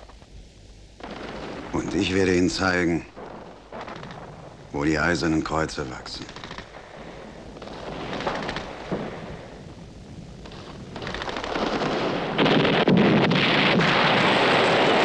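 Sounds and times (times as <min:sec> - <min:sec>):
explosions: 0:06.2 - 0:15.0.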